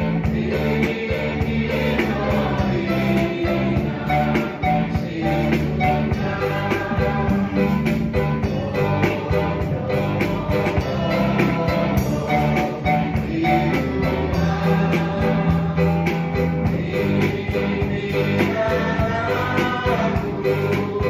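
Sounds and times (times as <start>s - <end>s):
electronic keyboard playing: 0.0s - 21.0s
steady drum beat: 0.0s - 21.0s.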